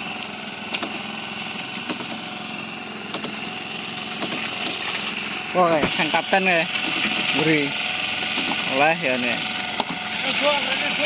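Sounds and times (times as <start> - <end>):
boat engine idling: 0.0 - 11.0
sharp clicks: 0.7 - 1.0, 1.9 - 2.2, 3.1 - 3.4, 4.2 - 4.8, 6.8 - 7.4, 8.3 - 8.7.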